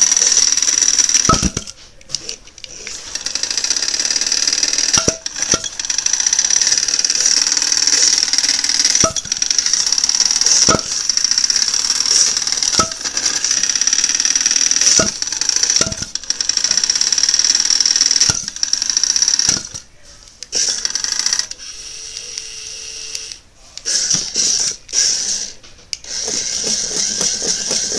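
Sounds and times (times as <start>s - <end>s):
toy robot motor whining: 0.0s - 19.8s, 20.5s - 27.9s
robot knocking into things: 1.2s - 1.7s, 10.5s - 11.1s, 12.6s - 13.1s, 14.8s - 16.2s, 19.5s - 19.8s.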